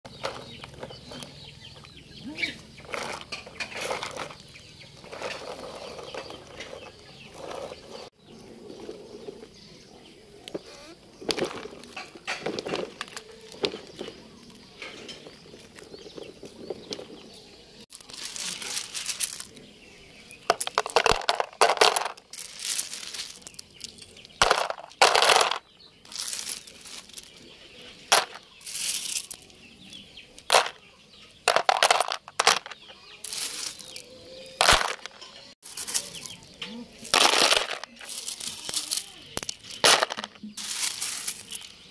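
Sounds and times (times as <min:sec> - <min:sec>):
gravel clattering into plastic: 0:11.2 - 0:14.2, 0:17.9 - 0:19.7, 0:20.3 - 0:29.5, 0:30.4 - 0:30.8, 0:31.4 - 0:41.9.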